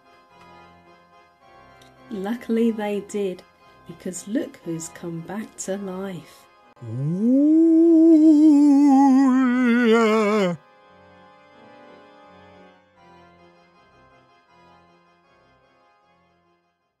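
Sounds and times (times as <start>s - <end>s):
faint keyboard music: 0.0s - 6.8s
ghostly wavering ooh voice: 6.8s - 10.6s.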